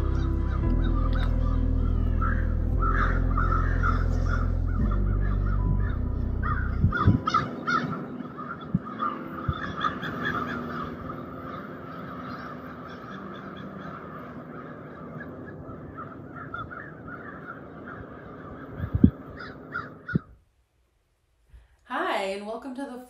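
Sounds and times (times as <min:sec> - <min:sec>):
flock of birds chattering: 0:00.0 - 0:20.3
low thumps: 0:02.5 - 0:07.4, 0:18.8 - 0:19.2.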